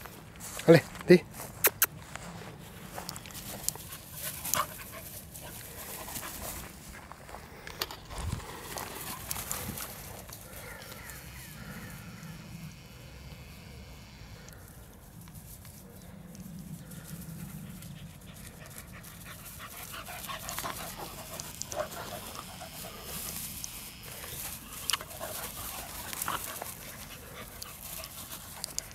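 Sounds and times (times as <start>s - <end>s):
dry grass rustling under paws: 0.0s - 12.3s, 14.4s - 28.9s
dogs panting and whimpering: 3.1s - 7.3s, 16.6s - 28.9s.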